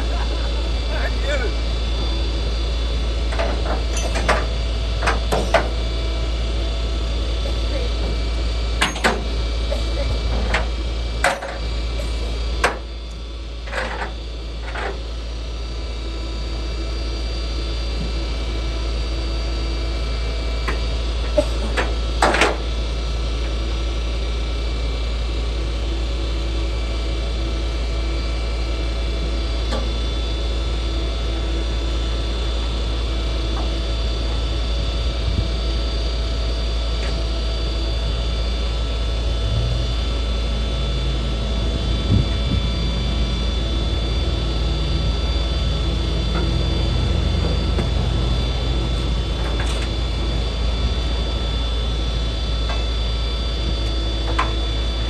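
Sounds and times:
truck idling: 0.0s - 55.0s.

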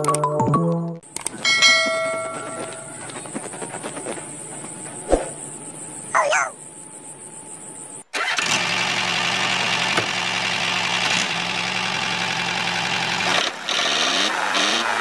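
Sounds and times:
model tractor engine running: 8.1s - 15.0s.

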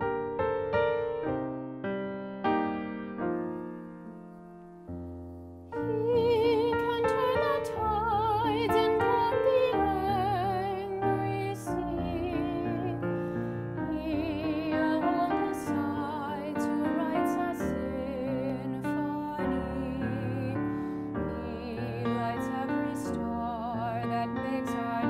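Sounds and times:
piano accompaniment: 0.0s - 25.0s
person singing with vibrato: 5.8s - 25.0s.

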